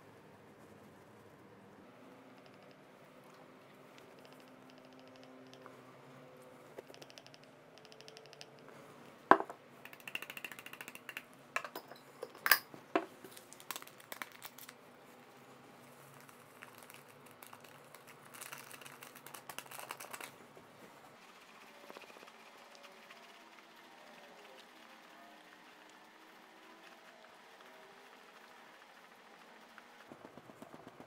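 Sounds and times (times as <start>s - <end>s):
paper sachet crinkling: 13.3s - 14.8s, 16.0s - 20.4s.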